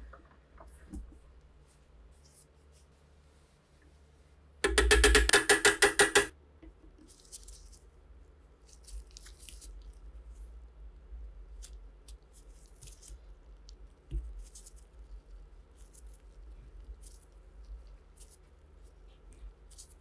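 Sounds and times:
chisel striking metal: 0:04.6 - 0:06.3.

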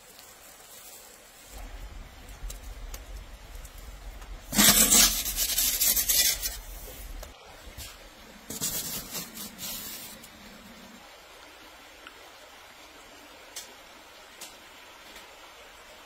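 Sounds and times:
metal peel scraping oven floor: 0:04.5 - 0:07.1, 0:08.5 - 0:10.2.

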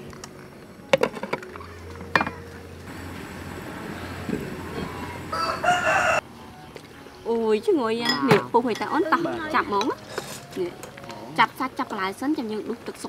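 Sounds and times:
gas burner humming: 0:02.8 - 0:05.9
glass lid clinking on pot: 0:08.0 - 0:09.0.

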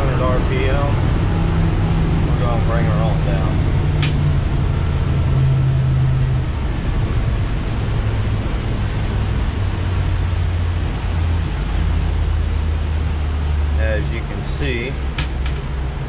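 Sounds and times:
outboard engine droning: 0:00.0 - 0:16.0
rush of wind and water: 0:00.0 - 0:16.0.

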